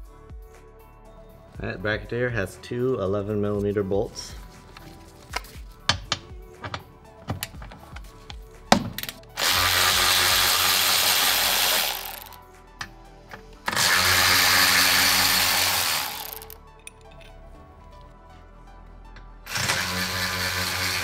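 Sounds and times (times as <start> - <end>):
background music: 0.0 - 21.0
electric ratchet running: 9.4 - 12.4, 13.7 - 16.6, 19.5 - 21.0.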